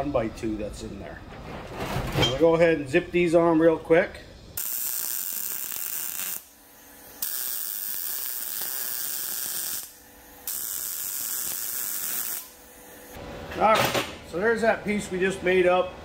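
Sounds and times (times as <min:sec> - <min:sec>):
welder arc running: 0:04.5 - 0:13.2.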